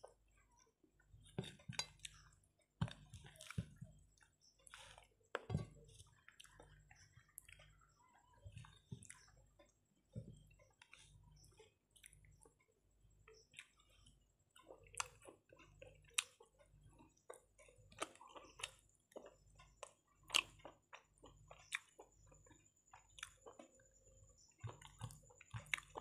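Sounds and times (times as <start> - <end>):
person chewing: 1.1 - 7.9, 13.2 - 23.8, 24.4 - 26.0.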